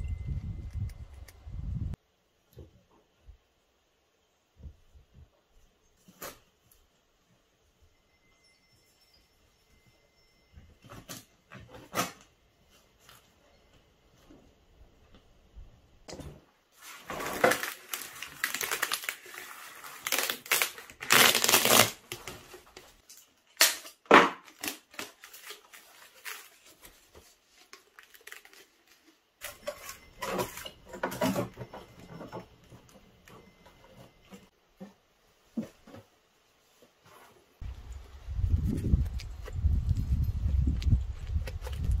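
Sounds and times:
metal duct crinkling: 16.8 - 33.4.

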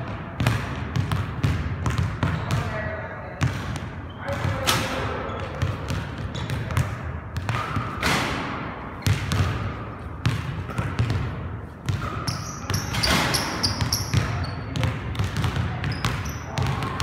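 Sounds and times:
basketball bouncing on hardwood: 0.4 - 2.7, 9.0 - 12.1, 12.7 - 17.0.

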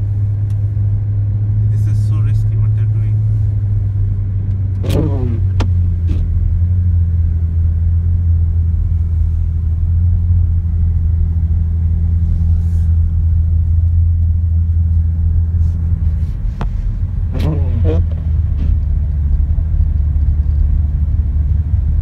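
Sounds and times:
car engine and tyres drone: 0.0 - 22.0.

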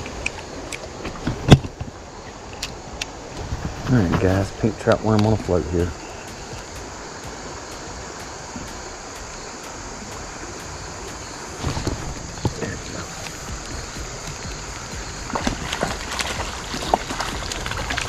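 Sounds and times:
knocks and rustles: 0.0 - 2.0, 11.6 - 14.7
creek water rushing: 0.0 - 18.0.

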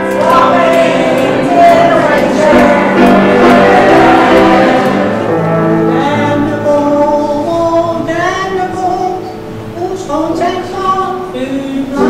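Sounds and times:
mixed choir singing: 0.0 - 6.5.

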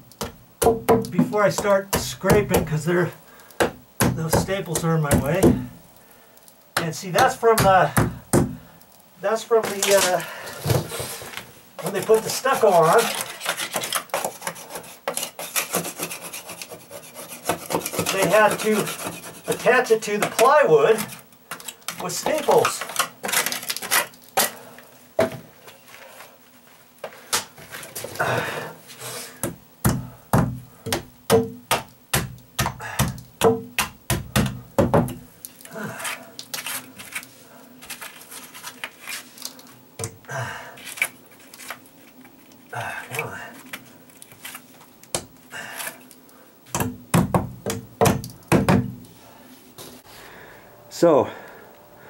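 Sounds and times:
hammer striking plywood: 29.8 - 35.2, 46.7 - 49.0.

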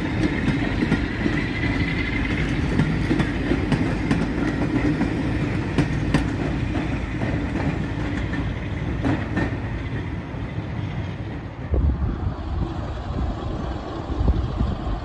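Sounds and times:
train wheels clicking over rail joints: 0.0 - 11.7.

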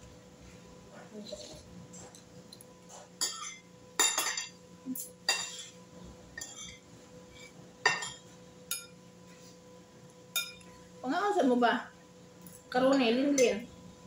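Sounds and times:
cutlery clinking on ceramic bowl: 2.9 - 5.8, 6.4 - 6.8, 7.8 - 9.0, 10.3 - 10.7.

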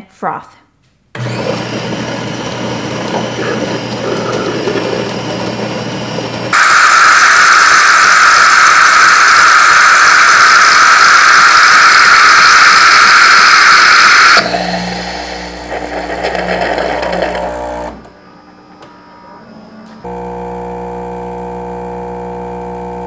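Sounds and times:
milk frother hissing: 1.2 - 18.0
espresso machine humming whir: 1.2 - 18.1, 20.0 - 23.0.

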